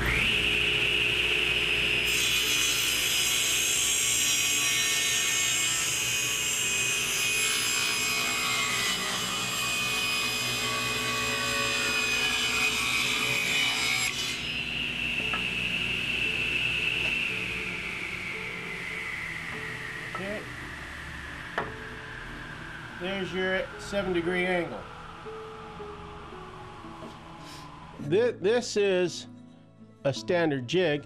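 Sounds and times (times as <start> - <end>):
saw blade cutting wood: 0.0 - 20.5
table saw whining: 0.0 - 28.2.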